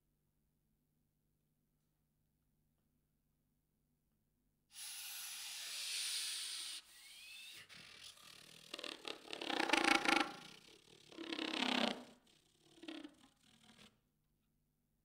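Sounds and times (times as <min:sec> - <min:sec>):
breathy air rush through saxophone: 0:04.8 - 0:13.9
rapid flutter of clicks and pops: 0:08.2 - 0:13.9.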